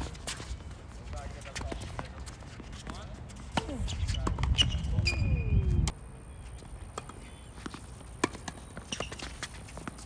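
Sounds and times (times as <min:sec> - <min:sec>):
footsteps on court: 0:00.0 - 0:10.0
racquets striking tennis ball: 0:06.7 - 0:10.0.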